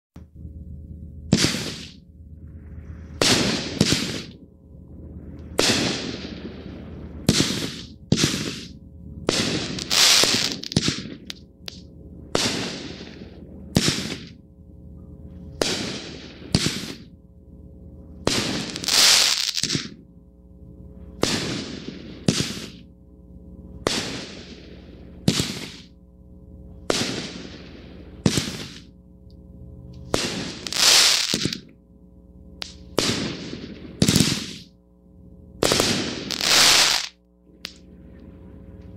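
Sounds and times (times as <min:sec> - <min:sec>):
firework cake sharp bangs: 0:01.3 - 0:02.0, 0:03.2 - 0:04.4, 0:05.6 - 0:06.6, 0:07.2 - 0:11.4, 0:12.3 - 0:14.4, 0:15.6 - 0:17.1, 0:18.2 - 0:20.0, 0:21.2 - 0:22.9, 0:23.8 - 0:25.9, 0:26.8 - 0:28.9, 0:30.1 - 0:31.7, 0:32.6 - 0:34.7, 0:35.6 - 0:37.8.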